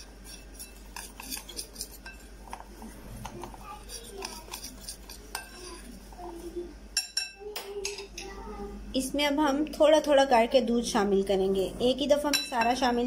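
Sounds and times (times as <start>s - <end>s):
spoon clinking and scraping glass bowl: 0.0s - 6.0s.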